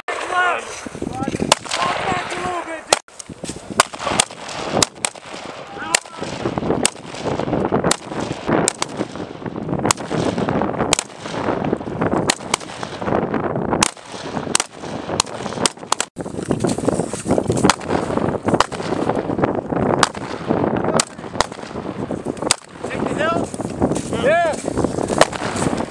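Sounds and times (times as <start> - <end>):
rifle shots with rumble: 1.5 - 2.1, 3.8 - 13.2, 17.6 - 19.2, 19.9 - 21.8, 25.2 - 25.7.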